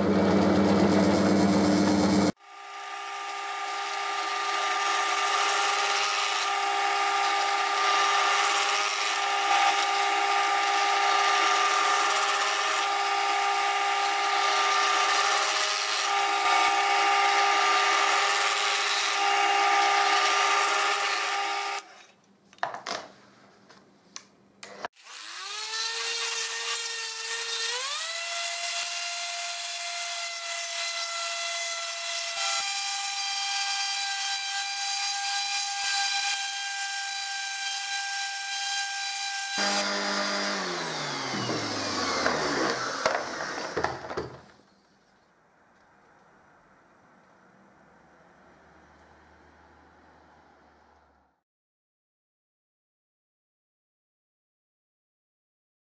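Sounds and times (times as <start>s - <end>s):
drill press drilling wood: 0.0s - 21.9s, 35.5s - 44.4s
orbital sander sanding wood: 39.3s - 44.0s.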